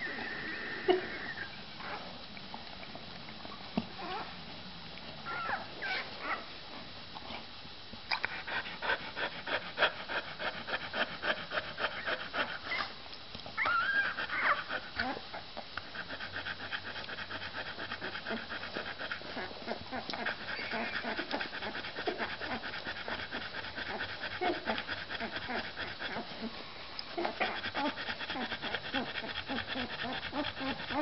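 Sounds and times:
puppy squeaking and whimpering: 5.3 - 6.4, 13.6 - 15.2
dog panting rapidly: 8.3 - 13.0, 14.0 - 15.1, 15.8 - 31.0.

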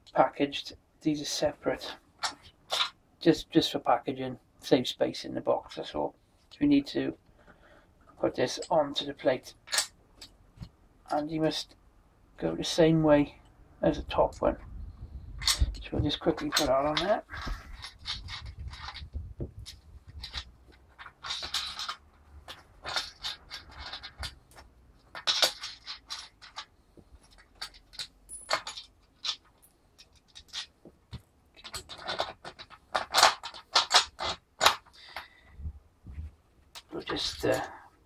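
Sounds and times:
metal nuts and washers clinking: 15.4 - 35.3.

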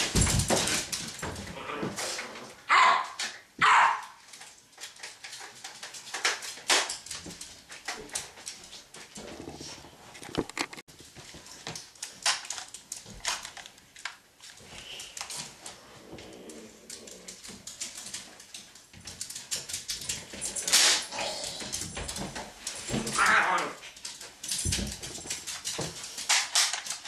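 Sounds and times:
knocks and clatter: 0.0 - 1.6
dog barking or yelping: 2.7 - 4.2.

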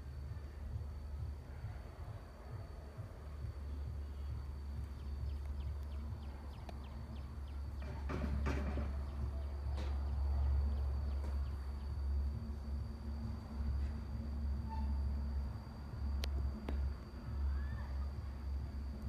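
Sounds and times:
steady high-pitched whine: 0.0 - 19.0
faint ticks: 16.1 - 17.2.

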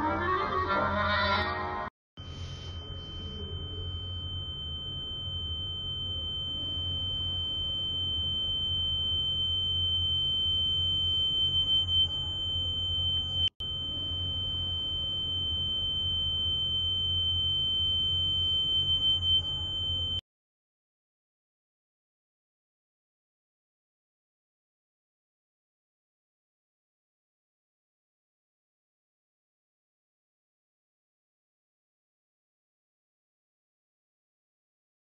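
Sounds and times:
high-pitched electronic tone: 0.0 - 1.9.

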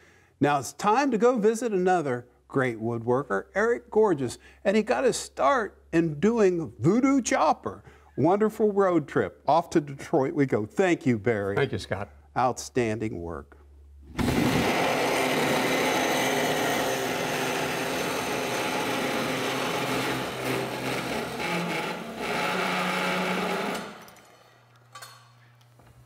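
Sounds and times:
saw cutting metal tube: 14.2 - 24.2
saw motor humming: 14.2 - 24.3.

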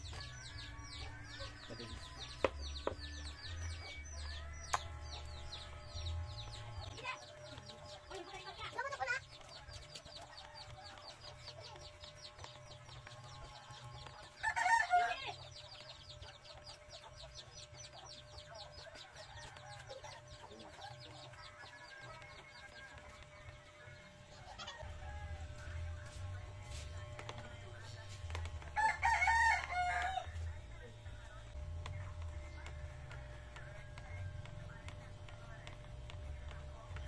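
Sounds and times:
electric hair clipper humming: 1.9 - 8.0, 24.9 - 28.9.

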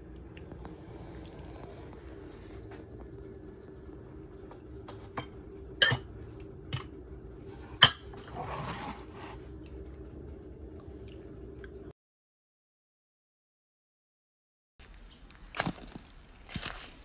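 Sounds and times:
low hum: 0.0 - 11.9
fork clinking against bowl: 5.2 - 6.0, 7.8 - 8.2
fork scraping through pasta: 7.5 - 9.5.

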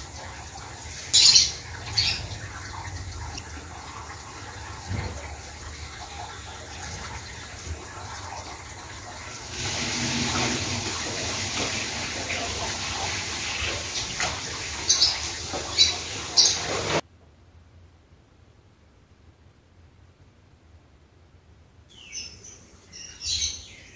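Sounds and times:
running water: 0.0 - 17.0.

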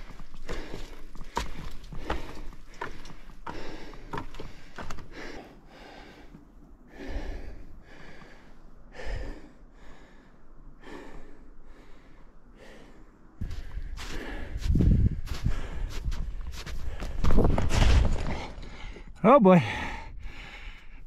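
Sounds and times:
person breathing hard: 0.0 - 17.4, 18.3 - 21.0
footfalls in snow: 13.4 - 18.5.

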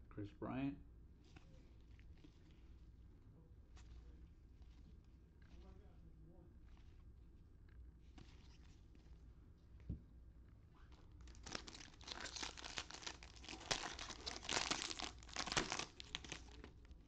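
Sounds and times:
foil wrapper tearing and crinkling: 11.2 - 16.8.

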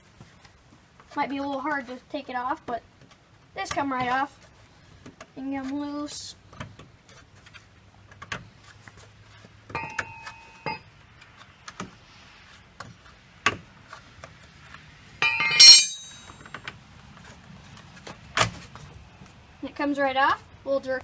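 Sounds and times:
metallic clinks: 15.2 - 16.4.

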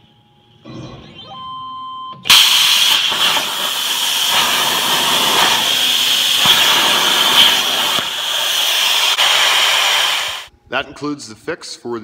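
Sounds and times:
plasma torch hissing: 2.3 - 10.5.

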